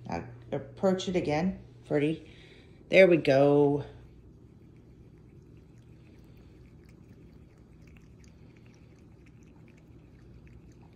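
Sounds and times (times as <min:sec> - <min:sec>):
low steady hum: 0:00.0 - 0:10.9
water trickling and dripping: 0:04.7 - 0:10.9.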